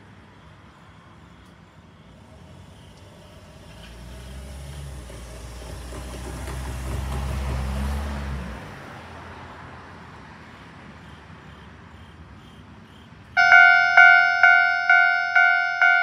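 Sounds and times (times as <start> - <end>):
vehicle passing by: 2.1 - 13.0.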